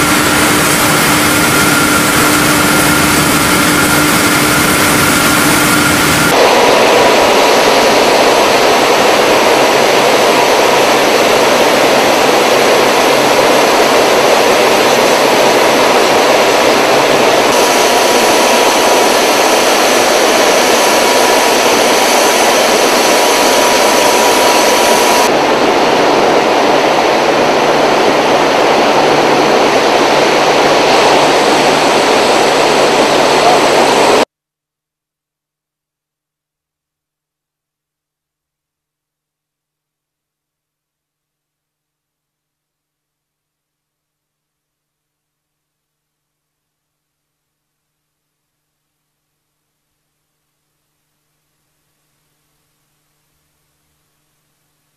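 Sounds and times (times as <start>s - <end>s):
faint steady whine: 0.0s - 34.3s, 39.2s - 54.9s
rolling mill machine roar: 0.0s - 34.3s.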